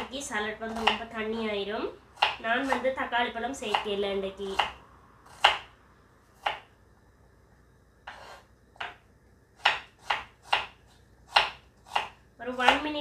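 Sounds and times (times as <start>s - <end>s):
knife slicing onion: 0.0s - 5.7s, 6.3s - 6.7s, 8.0s - 13.0s
knife striking chopping board: 9.6s - 12.8s.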